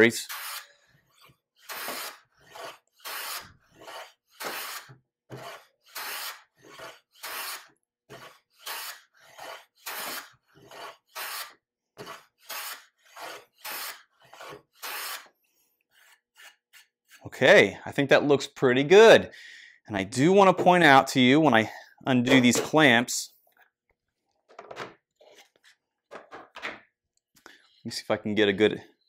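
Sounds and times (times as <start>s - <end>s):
hand plane rasping on wood: 0.4s - 15.3s.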